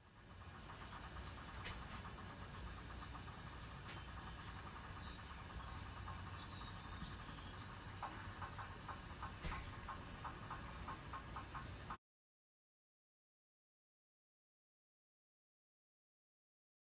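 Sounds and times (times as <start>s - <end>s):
insect chirping: 0.2s - 11.9s.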